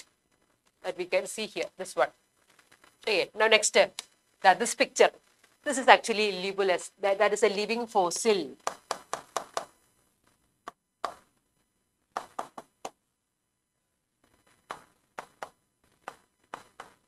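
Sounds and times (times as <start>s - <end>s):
pen tapping on glass board: 8.6s - 9.7s.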